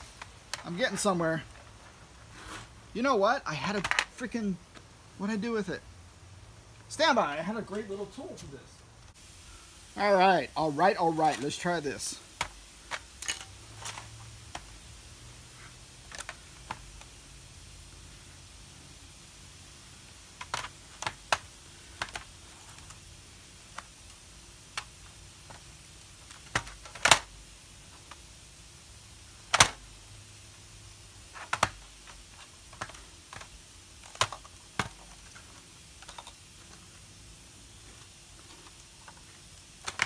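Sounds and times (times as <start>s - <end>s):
plastic case clicks and snaps: 29.5s - 29.8s.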